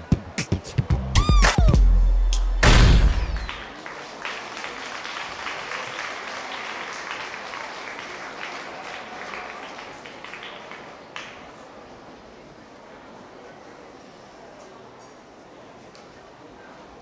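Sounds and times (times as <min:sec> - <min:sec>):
sharp knock: 0:02.4 - 0:03.6
audience applause: 0:03.0 - 0:11.7.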